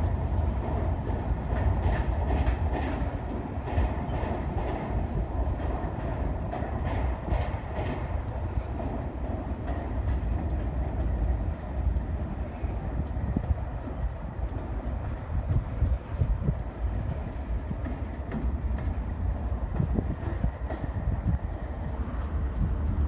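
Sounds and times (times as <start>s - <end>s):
diesel locomotive engine rumble: 0.0s - 23.0s
freight train passing: 0.0s - 23.0s
wheels clattering over rail joints: 0.6s - 23.0s.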